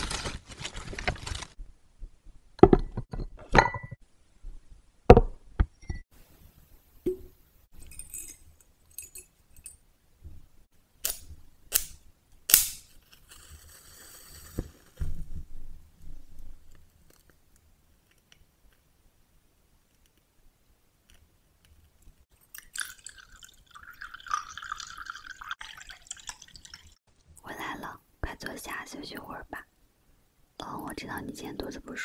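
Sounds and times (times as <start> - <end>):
glass objects clinking on table: 2.8 - 4.0
match striking on box: 11.0 - 15.0
burning match hiss: 12.6 - 15.0.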